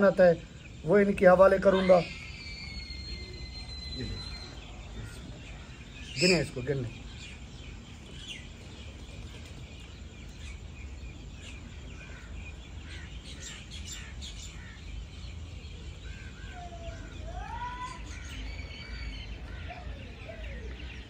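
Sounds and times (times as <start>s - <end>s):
whistled bird notes: 0.0s - 7.4s
low background noise: 0.0s - 21.0s
small birds chirping: 0.0s - 21.0s.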